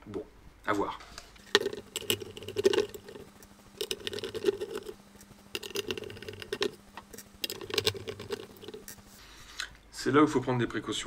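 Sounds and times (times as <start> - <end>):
screwdriver scratchy clicking: 1.4 - 9.1.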